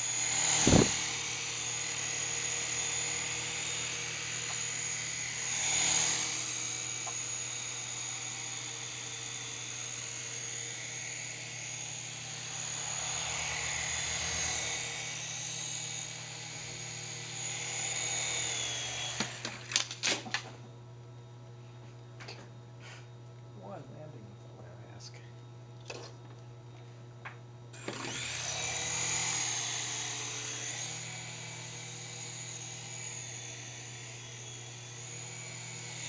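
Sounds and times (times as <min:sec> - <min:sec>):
toy helicopter motor whine: 0:00.0 - 0:20.4, 0:27.7 - 0:36.0.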